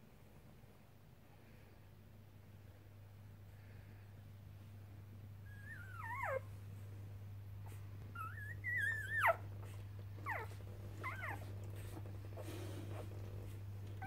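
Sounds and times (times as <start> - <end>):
steady low hum: 0.0 - 14.0
puppies squeaking and whining: 5.5 - 6.5, 7.6 - 14.0.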